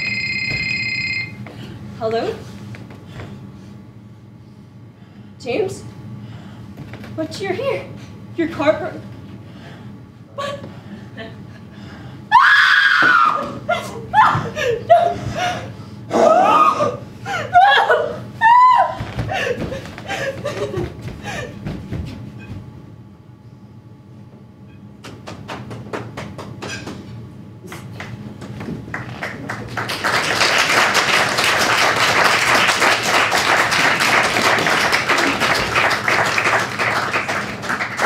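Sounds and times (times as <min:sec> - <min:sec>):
audience applause: 0:28.9 - 0:38.0.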